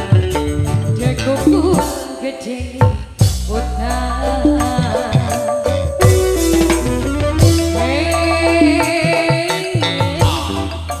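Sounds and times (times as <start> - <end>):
live dangdut band music: 0.0 - 11.0
drum hit: 4.4 - 8.0.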